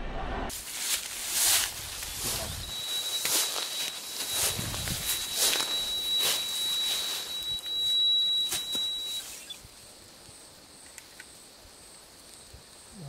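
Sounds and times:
high thin whine: 0.1 - 9.6
rustling through brush: 0.5 - 9.6
night insects chirring: 0.7 - 13.0.

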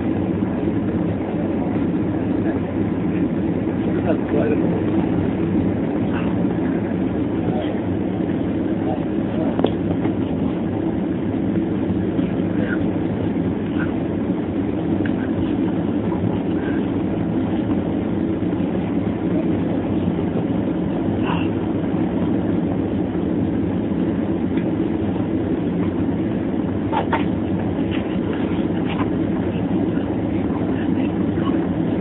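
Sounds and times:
jet engines and rushing air: 0.0 - 32.0.

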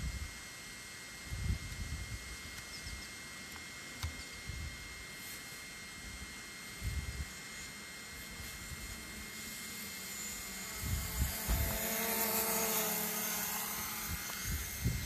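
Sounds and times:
faint high whine: 0.0 - 15.0
steady hiss: 0.0 - 15.0
wind buffeting microphone: 10.8 - 11.8, 14.0 - 15.0.

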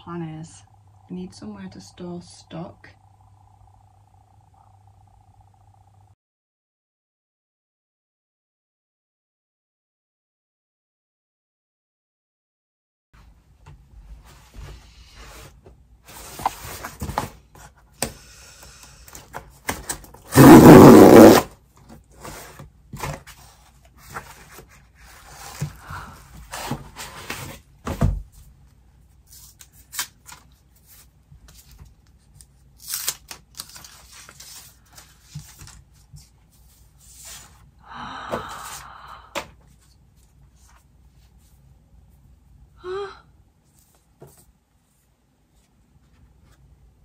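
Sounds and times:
cardboard tear strip ripping: 32.8 - 34.4.

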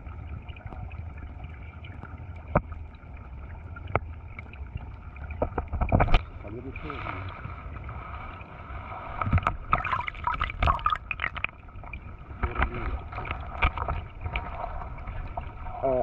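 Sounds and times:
muffled underwater stream: 0.0 - 16.0.

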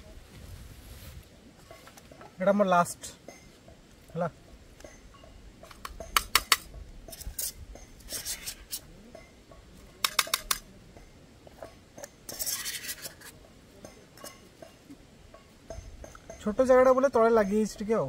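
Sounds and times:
metal utensil scraping metal dish: 5.9 - 8.9, 12.0 - 13.4.

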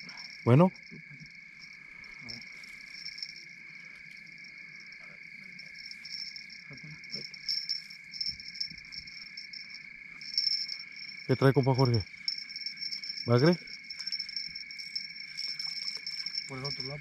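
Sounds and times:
crickets trilling: 0.0 - 17.0
pulsing high chirping: 0.0 - 17.0.

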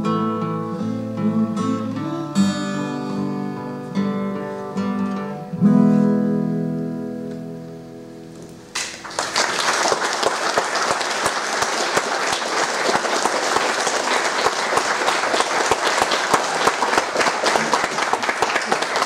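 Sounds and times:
guitar chord: 0.0 - 8.7
audience applauding: 8.8 - 19.0.

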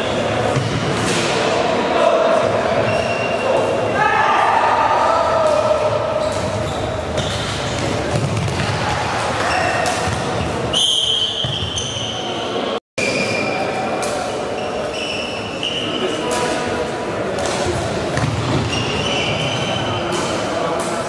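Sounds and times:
players shouting: 3.4 - 6.2
shoes squeaking on court floor: 6.2 - 8.7, 9.4 - 16.4, 18.2 - 20.3.

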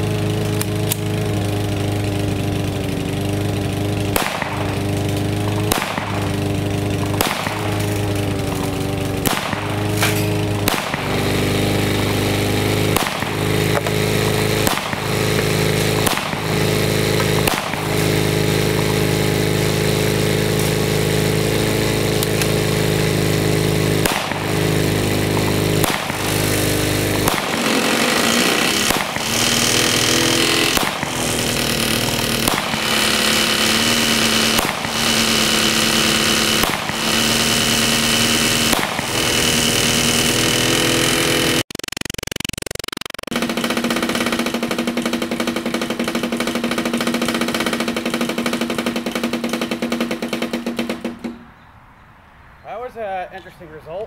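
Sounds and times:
lawn mower engine drone: 0.0 - 54.0
pistol shots: 4.2 - 8.2, 9.2 - 14.0, 14.6 - 18.8, 24.0 - 29.5, 30.5 - 31.3, 32.4 - 33.1, 34.5 - 34.9, 36.6 - 37.0, 38.7 - 39.1.

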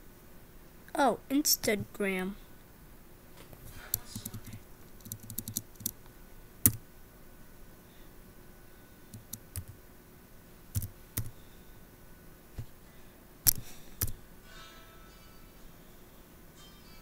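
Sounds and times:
computer keys clicking: 3.9 - 6.0, 9.1 - 9.8, 10.8 - 11.3, 13.5 - 14.2.

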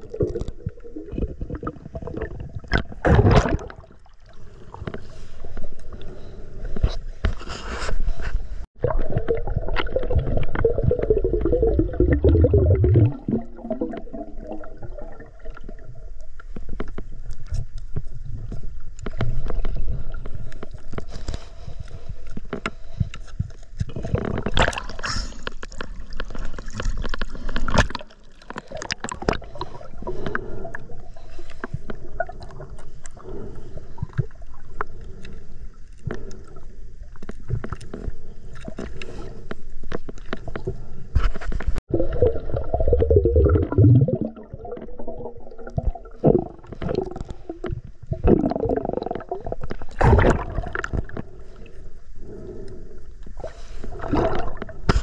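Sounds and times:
muffled underwater gurgling: 8.8 - 15.5, 41.9 - 51.6
small underwater clicks: 15.5 - 41.8, 45.6 - 55.0.

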